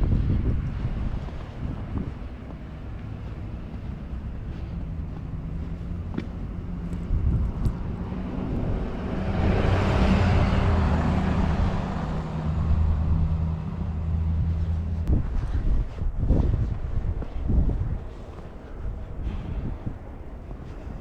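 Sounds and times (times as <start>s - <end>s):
steady low rumble: 0.0s - 21.0s
vehicle driving past on snow: 0.6s - 15.6s.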